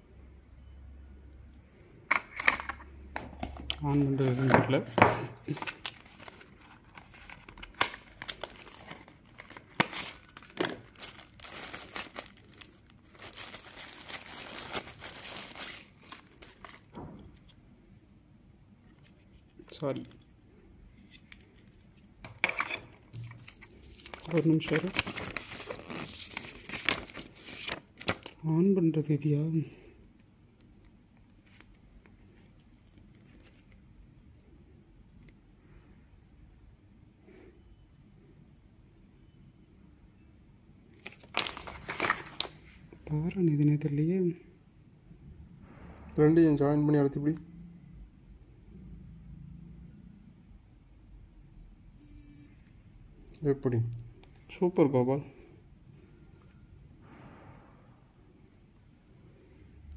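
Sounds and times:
packaging crinkling: 0:05.5 - 0:17.0, 0:23.1 - 0:28.4, 0:41.0 - 0:42.6.

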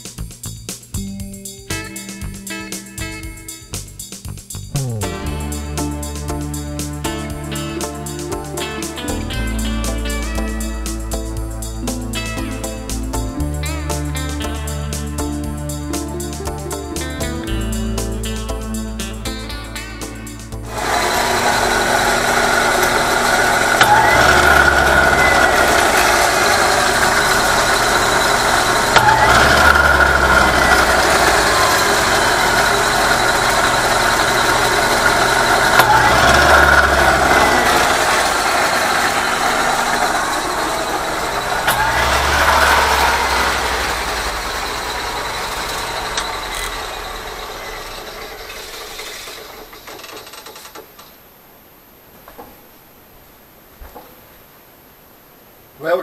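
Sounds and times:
band saw cutting metal: 0:04.8 - 0:50.5
motor surging: 0:20.1 - 0:49.8.

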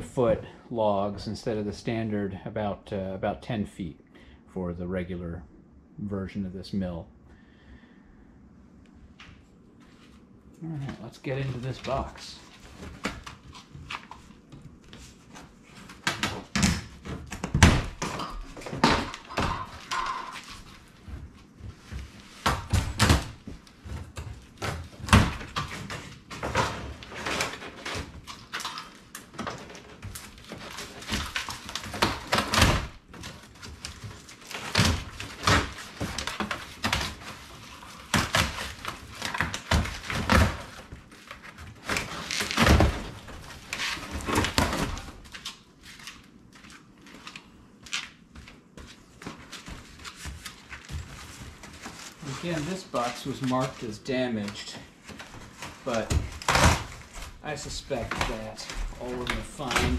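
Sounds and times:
cardboard scraping and rustling: 0:49.1 - 0:59.9.

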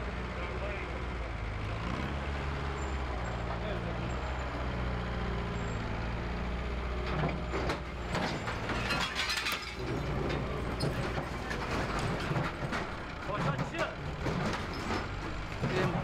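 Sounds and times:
clattering knocks and crashes: 0:06.9 - 0:16.0.

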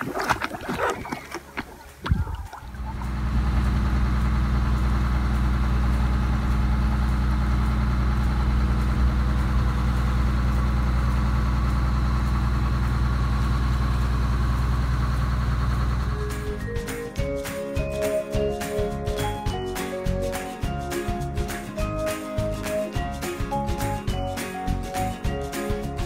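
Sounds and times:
water rushing along hull: 0:00.0 - 0:06.2
boat engine droning: 0:00.0 - 0:19.5.

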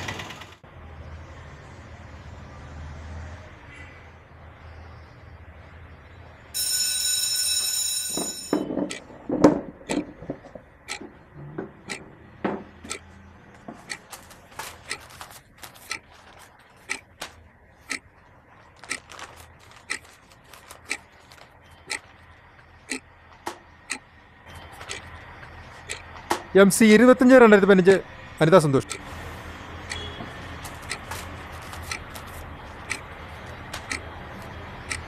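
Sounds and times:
heavy knocks: 0:08.1 - 0:13.0
sharp ticking clicks: 0:09.9 - 0:11.2, 0:11.9 - 0:12.1, 0:12.8 - 0:26.5, 0:28.8 - 0:29.1, 0:29.8 - 0:35.0.

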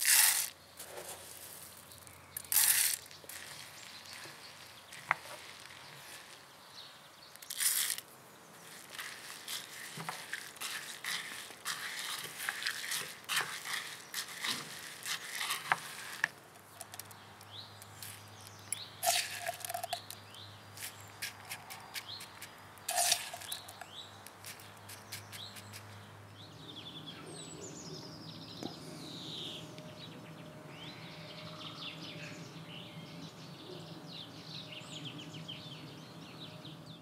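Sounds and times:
seeds rattling into pot: 0:00.0 - 0:06.5, 0:07.3 - 0:25.8
wooden spoon stirring seeds: 0:00.0 - 0:25.8.

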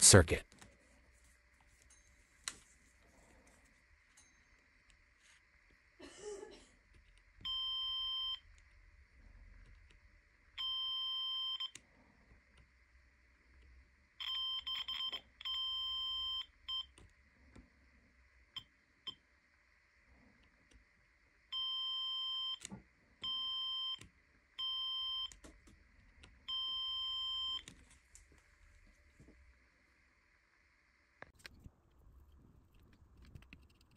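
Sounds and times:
multimeter continuity beeps: 0:07.4 - 0:08.6, 0:10.6 - 0:11.8, 0:14.2 - 0:17.0, 0:21.5 - 0:25.4, 0:26.4 - 0:27.7.

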